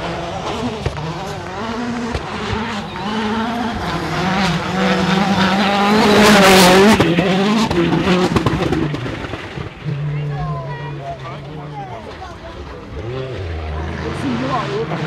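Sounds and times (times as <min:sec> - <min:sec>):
rally car engine revving: 0:00.0 - 0:15.0.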